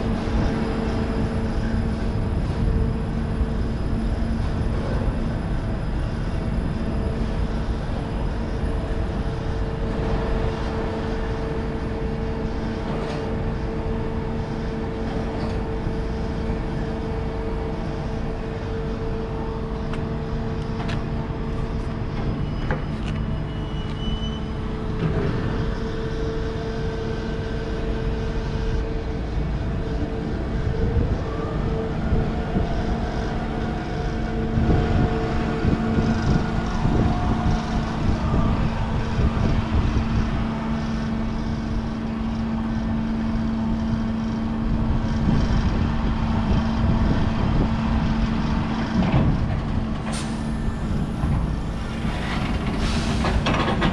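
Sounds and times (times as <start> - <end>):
crane machinery hum: 0.0 - 53.9
diesel trucks idling: 24.5 - 53.9.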